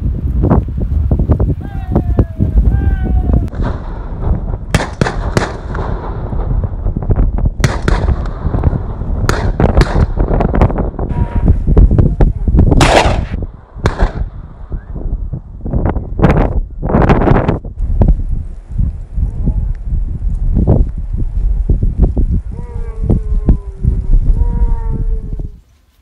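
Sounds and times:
guns firing shots: 3.5 - 6.5, 7.6 - 8.6, 9.3 - 10.3, 12.8 - 14.4.

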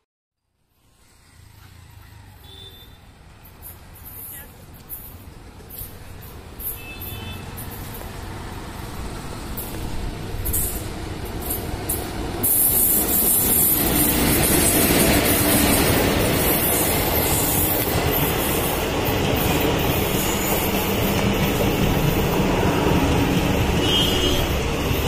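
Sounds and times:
electric locomotive passing: 0.6 - 25.0
train wheels rolling on rails: 3.2 - 25.0.

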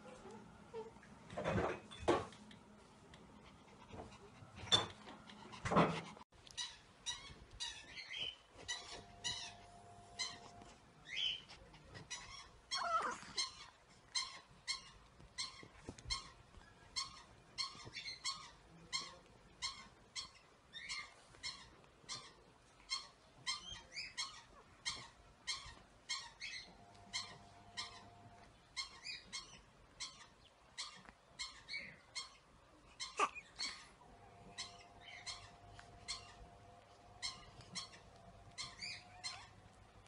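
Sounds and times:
dog whining: 8.7 - 16.3, 33.0 - 39.6
small dog yapping: 12.4 - 13.7.

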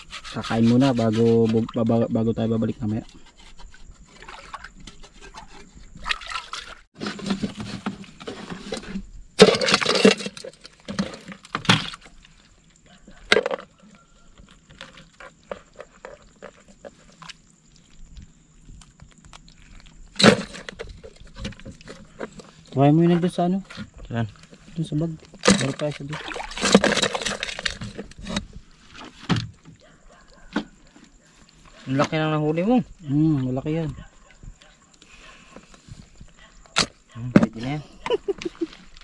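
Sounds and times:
water sloshing and pouring: 3.8 - 13.6, 25.4 - 29.8.

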